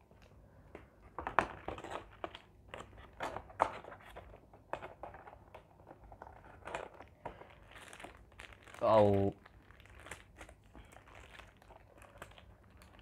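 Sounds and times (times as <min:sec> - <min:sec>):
paper wrapper crinkling: 0:05.8 - 0:13.0.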